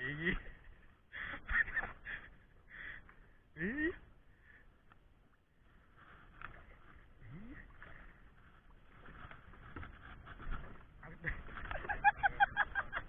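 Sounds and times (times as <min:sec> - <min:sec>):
water slapping against boat: 0:07.7 - 0:13.0.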